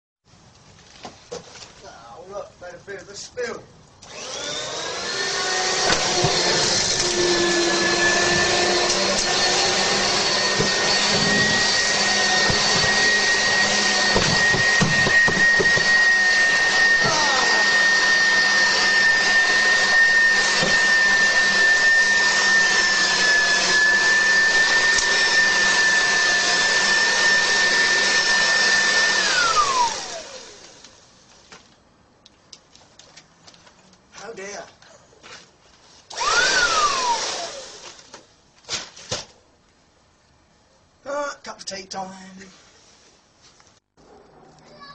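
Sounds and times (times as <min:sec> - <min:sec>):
vacuum cleaner motor whine: 0:04.0 - 0:31.1, 0:36.1 - 0:38.1.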